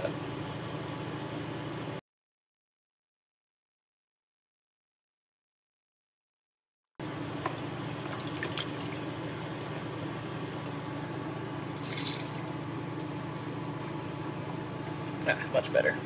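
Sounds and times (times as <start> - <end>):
pot humming and hissing: 0.0 - 2.0, 7.0 - 16.0
paste splashing into pot: 11.8 - 12.5.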